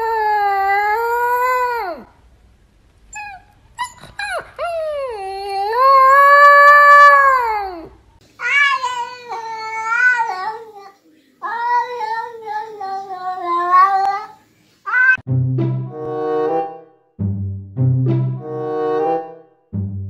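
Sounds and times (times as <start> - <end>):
puppy howling: 0.0 - 2.1, 3.1 - 10.9
cat meowing: 6.9 - 15.2.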